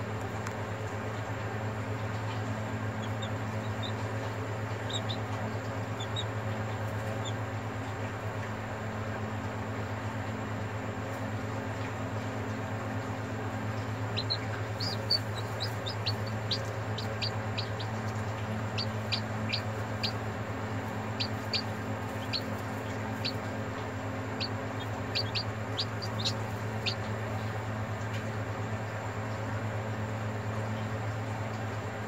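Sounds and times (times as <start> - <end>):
steady low hum: 0.0 - 32.0
chick peeping: 1.2 - 9.2, 11.8 - 29.1.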